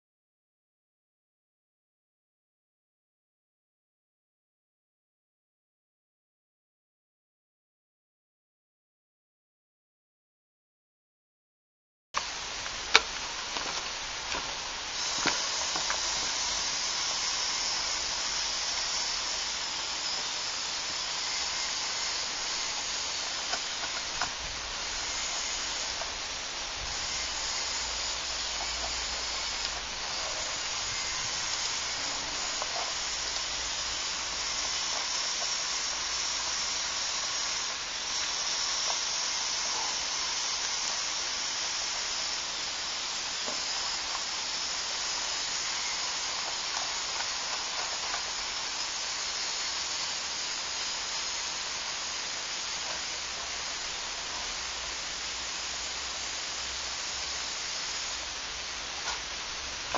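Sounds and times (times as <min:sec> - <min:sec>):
electric motors whirring: 0:12.2 - 0:59.9.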